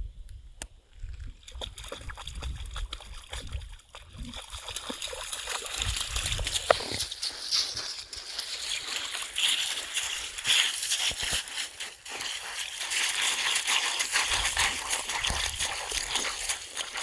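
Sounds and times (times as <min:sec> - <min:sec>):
paws scraping on stones: 0:01.2 - 0:17.0
water splashing in puddle: 0:01.2 - 0:17.0.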